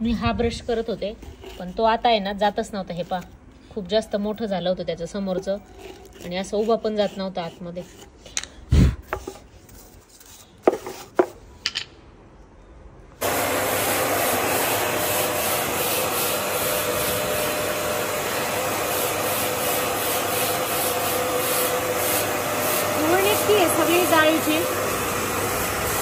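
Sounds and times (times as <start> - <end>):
vacuum cleaner humming: 13.2 - 26.0.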